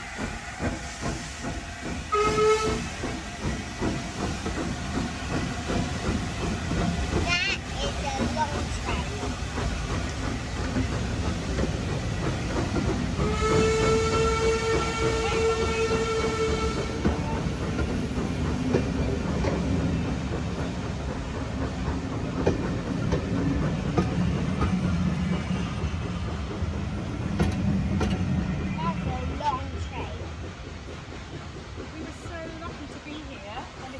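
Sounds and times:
train coaches rumbling on rails: 0.0 - 33.9
steam locomotive whistle: 2.1 - 3.2, 13.2 - 17.2.

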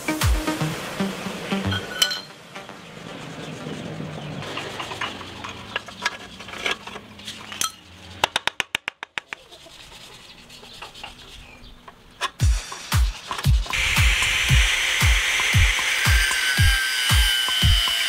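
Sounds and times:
metal tools clinking: 1.8 - 2.4, 4.4 - 7.9.

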